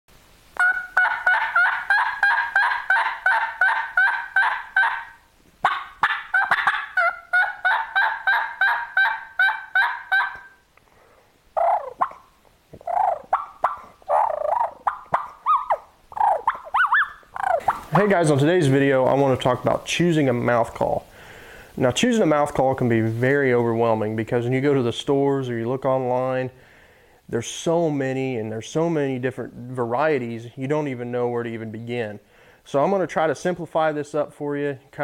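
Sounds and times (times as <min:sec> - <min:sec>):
turkey call notes: 0:00.6 - 0:10.7, 0:11.6 - 0:19.5.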